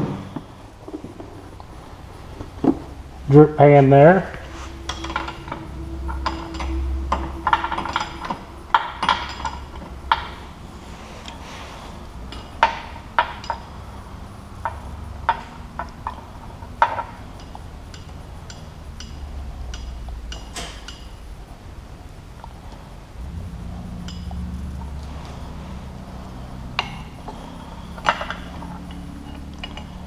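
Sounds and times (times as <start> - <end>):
low steady hum: 0.0 - 30.0
wrenches clinking on metal fitting: 14.6 - 21.2, 26.8 - 30.0.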